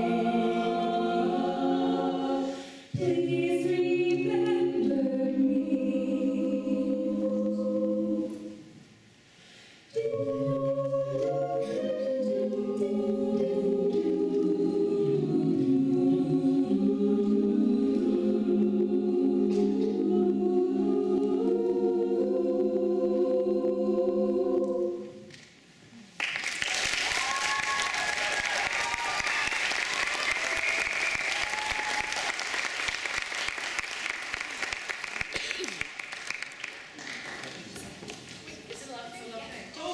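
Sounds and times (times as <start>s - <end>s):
choir holding a chord: 0.0s - 8.8s, 9.9s - 25.3s
audience applause: 26.2s - 37.7s.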